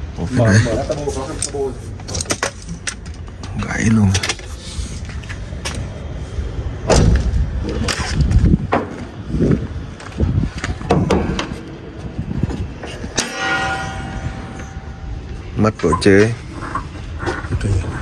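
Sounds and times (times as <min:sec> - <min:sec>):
car bonnet thumps and knocks: 0:10.8 - 0:11.5.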